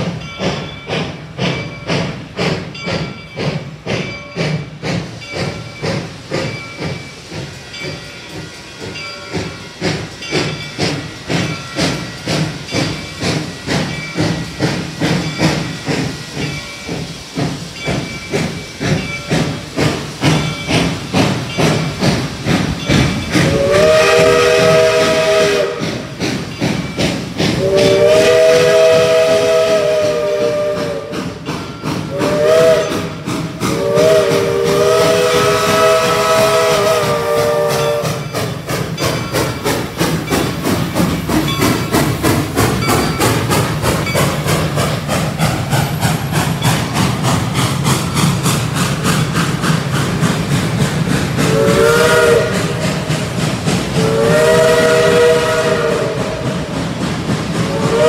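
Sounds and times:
steam locomotive exhaust chuffing: 0.0 - 58.0
train chime whistle blasts: 22.9 - 26.1, 26.7 - 40.5, 51.4 - 53.0, 53.9 - 56.7, 57.6 - 58.0.

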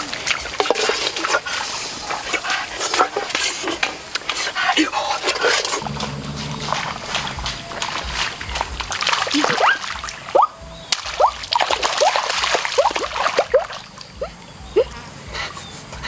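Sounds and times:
water splashing while wading: 7.7 - 14.2.

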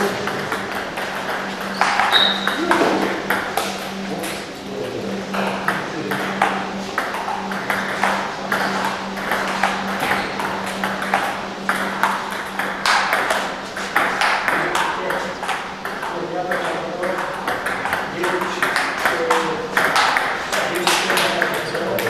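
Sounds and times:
table tennis balls clicking: 0.0 - 4.6, 5.2 - 22.0
steady low hum: 0.0 - 22.0.

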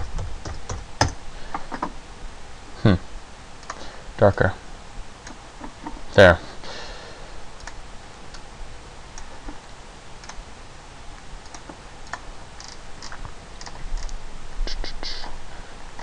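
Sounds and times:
microphone hiss: 0.0 - 16.0
mouse and keyboard clicks: 11.4 - 14.2.

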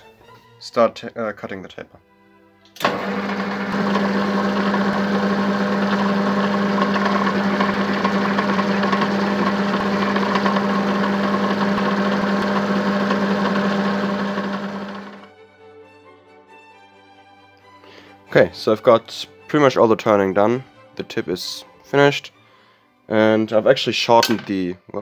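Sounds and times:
metal lathe cutting: 2.8 - 15.3.

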